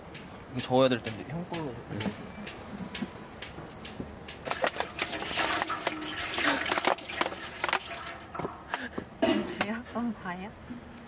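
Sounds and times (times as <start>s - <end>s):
water pouring into a container: 4.5s - 8.6s.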